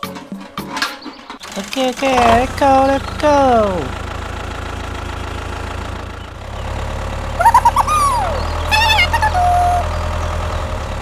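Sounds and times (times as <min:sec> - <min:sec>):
low engine drone: 0:01.6 - 0:11.0
squeaky high-pitched voice cries: 0:07.4 - 0:09.9.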